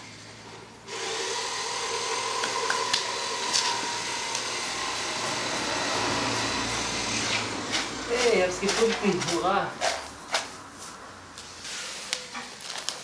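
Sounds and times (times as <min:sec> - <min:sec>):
whirring machine hiss: 0:00.9 - 0:08.3
grit scraped by hand: 0:07.1 - 0:13.0.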